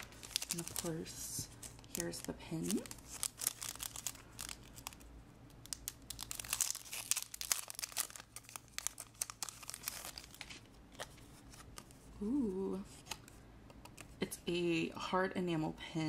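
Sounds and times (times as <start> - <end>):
plastic sleeve crinkling: 0.0 - 12.0.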